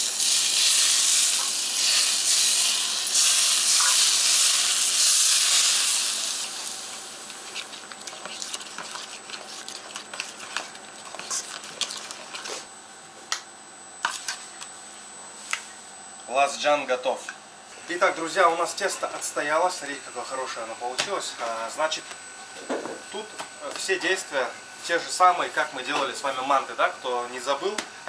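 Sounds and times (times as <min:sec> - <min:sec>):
hot oil sizzling: 0:00.0 - 0:07.8
metal spoon scraping steel bowl: 0:07.4 - 0:12.5.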